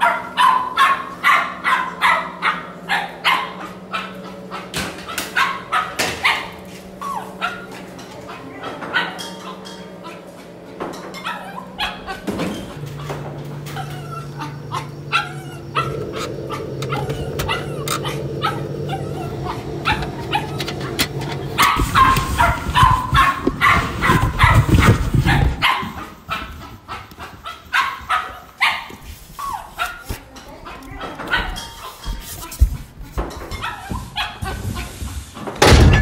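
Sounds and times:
dog yapping barks: 0:00.0 - 0:10.2, 0:11.1 - 0:32.0
steady low hum: 0:01.8 - 0:27.2
dog whimpers: 0:05.3 - 0:10.4, 0:11.1 - 0:26.0.

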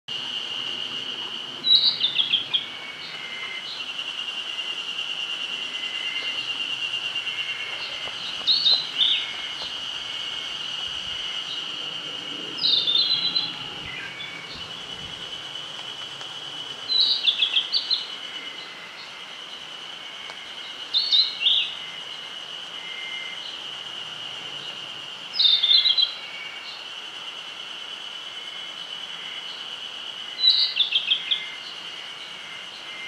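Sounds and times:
bird singing whistled notes: 0:01.6 - 0:03.9, 0:12.6 - 0:14.7, 0:16.9 - 0:18.7, 0:30.4 - 0:31.6.

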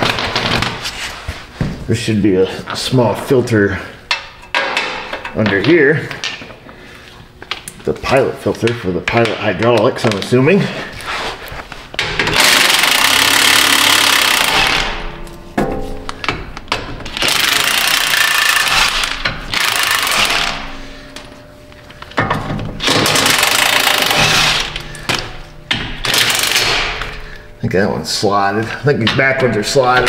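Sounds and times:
impact wrench hammering bolts: 0:04.1 - 0:05.6, 0:12.0 - 0:21.3, 0:22.2 - 0:27.4.

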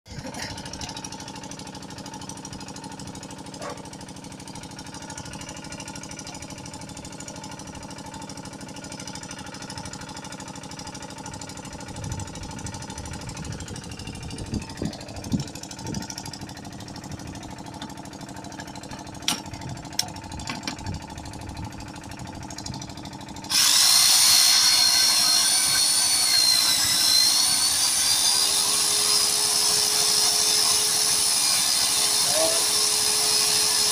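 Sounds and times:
electric facing tool whining: 0:11.3 - 0:33.9.

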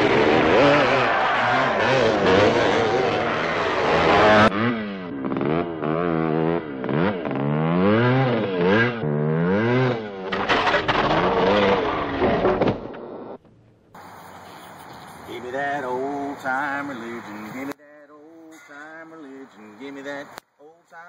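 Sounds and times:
motocross bike engine revving: 0:00.0 - 0:12.9.

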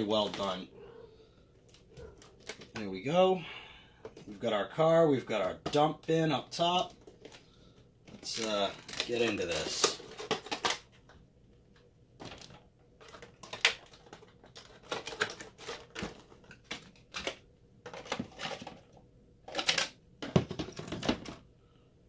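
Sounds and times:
cardboard and foam packaging handled: 0:01.6 - 0:02.9, 0:05.7 - 0:11.1, 0:12.2 - 0:21.4.

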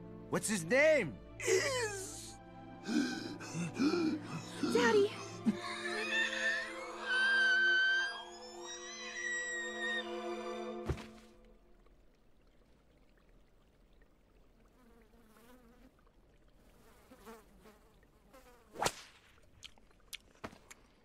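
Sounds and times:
housefly buzzing: 0:14.8 - 0:15.9, 0:16.7 - 0:18.9.

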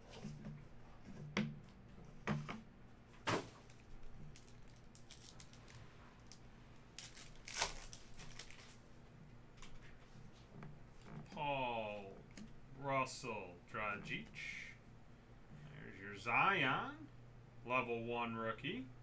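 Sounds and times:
foil wrapper crinkling: 0:03.7 - 0:08.9
pack tearing open: 0:04.3 - 0:06.4, 0:07.0 - 0:08.8.

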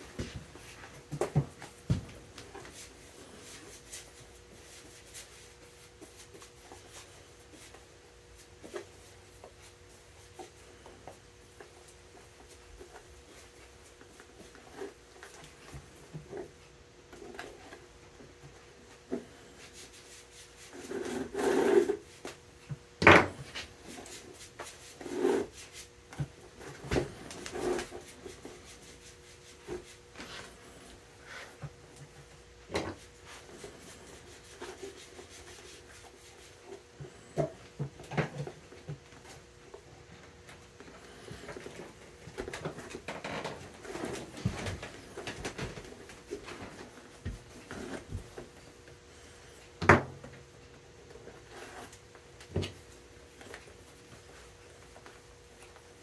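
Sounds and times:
awl scratching through leather: 0:19.6 - 0:22.1, 0:23.9 - 0:25.9.

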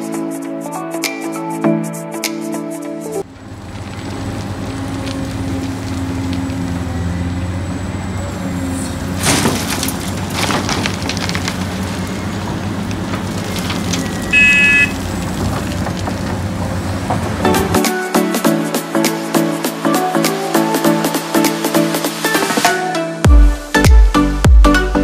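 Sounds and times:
excavator diesel engine running: 0:03.2 - 0:22.6
soil and rocks dumped into truck: 0:03.3 - 0:17.8
short high beep: 0:14.2 - 0:15.0.

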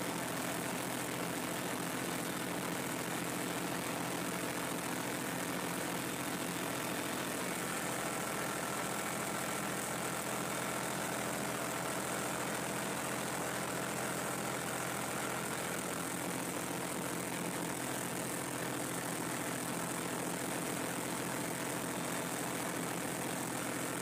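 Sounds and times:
tractor engine droning: 0:05.9 - 0:24.0.

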